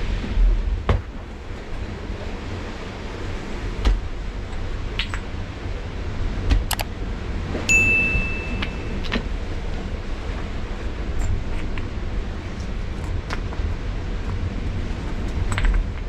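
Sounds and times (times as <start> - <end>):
steady low rumble: 0.0 - 16.0
small metal object ringing: 7.7 - 9.0.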